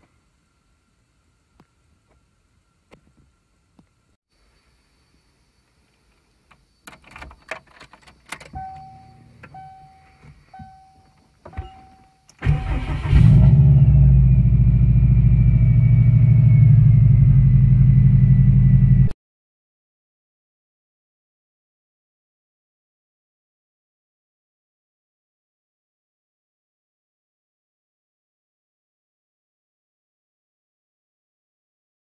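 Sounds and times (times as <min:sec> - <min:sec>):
key clicking into ignition: 0:06.8 - 0:09.7
short dashboard chimes: 0:08.5 - 0:13.1
car engine starting and idling: 0:11.5 - 0:19.1
faint falling whine: 0:13.6 - 0:19.2.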